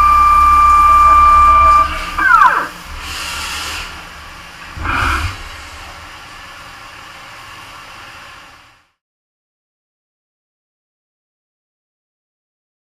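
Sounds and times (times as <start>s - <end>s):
spindle whine falling in pitch: 0.0s - 2.8s
steady hiss: 2.1s - 9.0s
hissing spray bursts: 2.8s - 8.9s.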